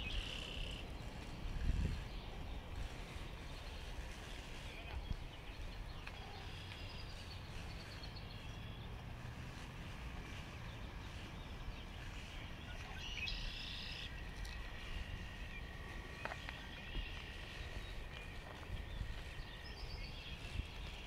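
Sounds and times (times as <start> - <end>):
low outdoor rumble: 0.0 - 21.0
high bird chirps: 11.9 - 14.3.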